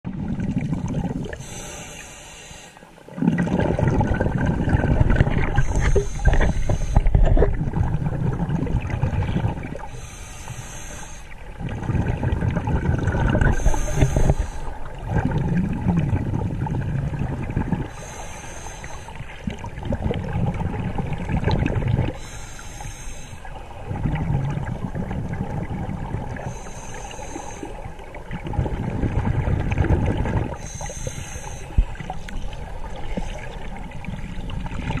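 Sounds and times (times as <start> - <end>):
exhaled bubbles rumbling: 0.0 - 1.6, 3.0 - 10.2, 11.3 - 18.2, 18.9 - 22.4, 23.4 - 35.0
regulator inhale hiss: 1.4 - 2.9, 5.6 - 7.2, 9.9 - 11.4, 13.5 - 14.9, 17.9 - 19.4, 22.2 - 23.6, 26.4 - 27.9, 30.5 - 32.4.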